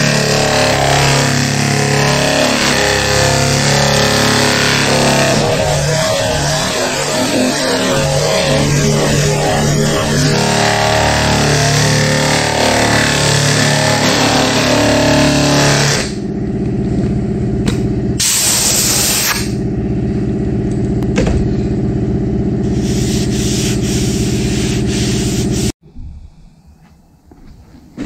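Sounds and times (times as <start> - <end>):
pneumatic sander scrubbing paint: 0.0 - 16.2, 22.6 - 25.8.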